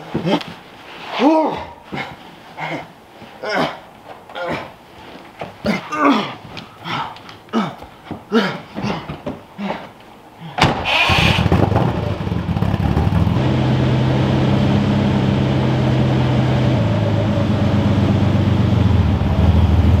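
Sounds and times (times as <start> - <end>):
car engine starting and idling: 10.7 - 20.0.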